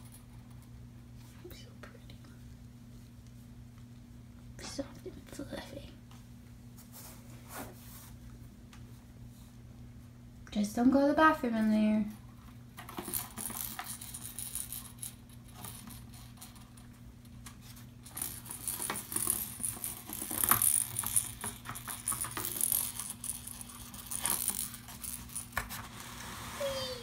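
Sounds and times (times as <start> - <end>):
toy ball jingling and rattling: 12.9 - 16.8, 18.0 - 25.7.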